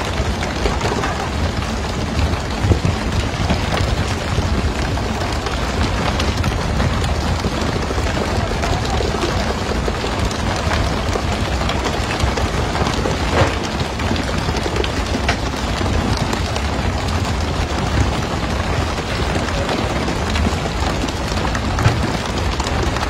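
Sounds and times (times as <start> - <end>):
boat engine running: 0.0 - 23.0
rushing water and spray: 8.5 - 23.0.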